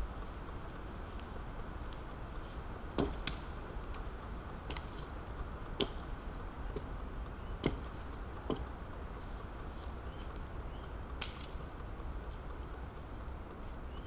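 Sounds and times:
axe chopping wood: 0:02.9 - 0:03.4, 0:05.8 - 0:06.0, 0:07.6 - 0:08.7.

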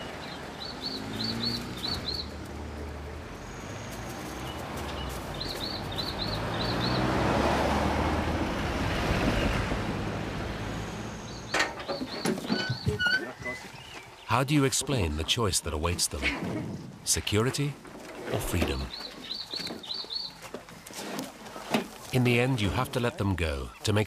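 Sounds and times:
bird chirping: 0:00.0 - 0:02.5, 0:03.3 - 0:07.2, 0:10.7 - 0:15.8, 0:18.4 - 0:20.6
vehicles passing on road: 0:00.0 - 0:23.8.

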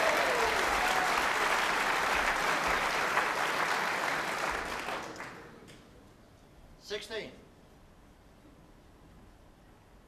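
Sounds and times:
audience applauding: 0:00.0 - 0:05.5.

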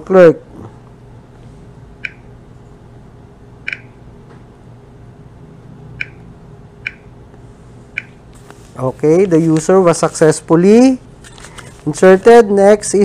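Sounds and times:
faint steady hum: 0:00.0 - 0:13.0
touchscreen keypad clicks: 0:02.0 - 0:02.3, 0:03.7 - 0:04.0, 0:06.0 - 0:06.2, 0:06.8 - 0:07.1, 0:08.0 - 0:08.2.

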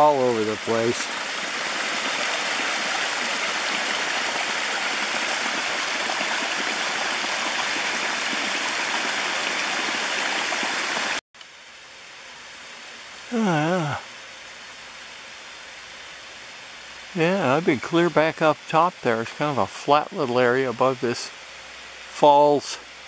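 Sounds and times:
creek splashing over rocks: 0:00.0 - 0:11.2.

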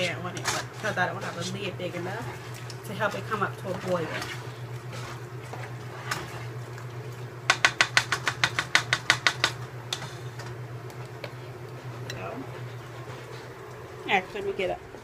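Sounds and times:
spoon stirring thick mixture: 0:00.0 - 0:14.4
spoon knocking metal pot: 0:07.5 - 0:09.6.

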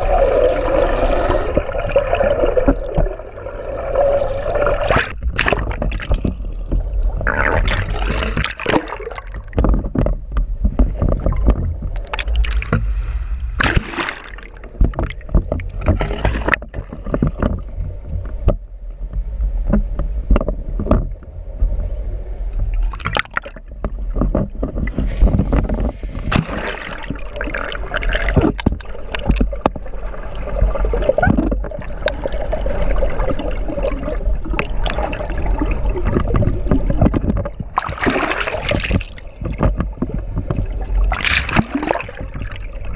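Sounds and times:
water sloshing and gurgling: 0:00.0 - 0:42.9
splashes and knocks: 0:04.7 - 0:21.2, 0:22.6 - 0:42.9
steady low rumble: 0:09.2 - 0:38.3.

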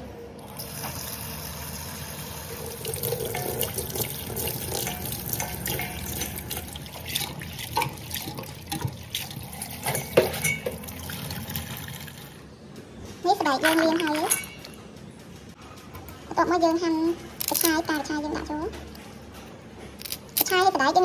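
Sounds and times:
tap water running into metal bowl: 0:00.5 - 0:12.4
hands splashing rinsing vegetables: 0:02.6 - 0:12.2.

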